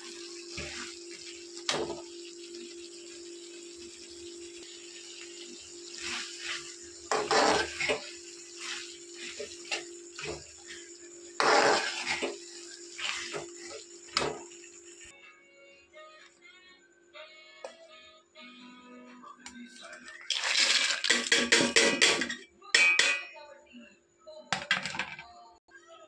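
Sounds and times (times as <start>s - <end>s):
metal spatula scraping and squelching: 0.0s - 2.9s, 3.8s - 14.4s
tomatoes sizzling in a pan: 0.0s - 15.1s.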